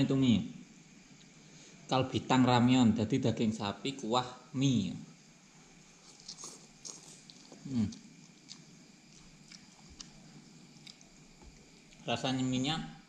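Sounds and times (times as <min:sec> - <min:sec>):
person humming mm: 0:07.6 - 0:08.0.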